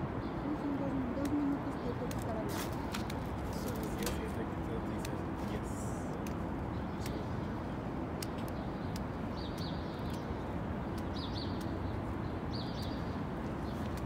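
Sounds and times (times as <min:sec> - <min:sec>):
small bird chirping: 0:08.4 - 0:14.0.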